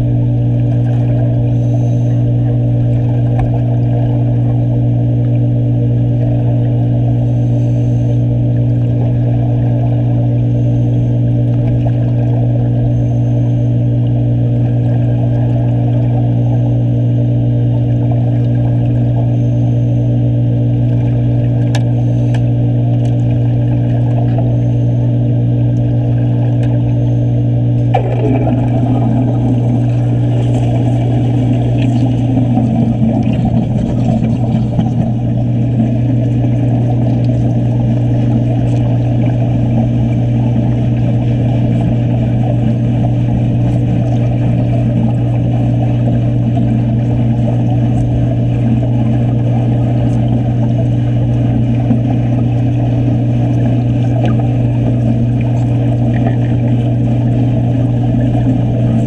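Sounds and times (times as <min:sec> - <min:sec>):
underwater welding arc crackling: 0:00.0 - 0:27.0, 0:27.6 - 0:59.0
constant low hum: 0:00.0 - 0:59.0.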